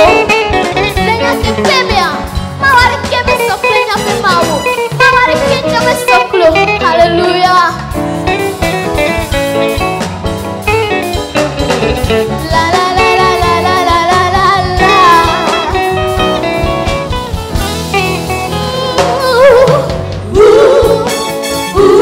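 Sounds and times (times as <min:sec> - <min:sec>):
band with steady drum beat: 0:00.0 - 0:22.0
girl singing lead vocal: 0:01.0 - 0:07.9, 0:12.4 - 0:16.3, 0:18.4 - 0:22.0
backing singers: 0:18.4 - 0:22.0.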